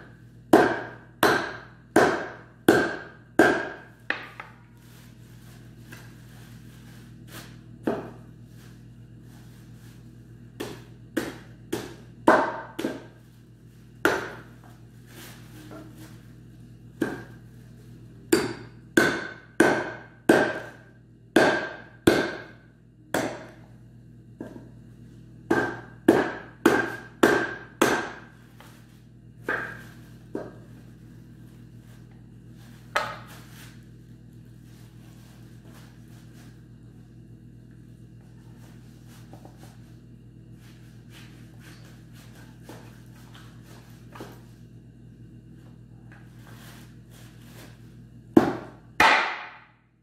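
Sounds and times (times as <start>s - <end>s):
cleaver hacking bone on metal tray: 0.5s - 4.2s, 18.3s - 20.7s, 21.4s - 22.5s, 25.5s - 28.3s.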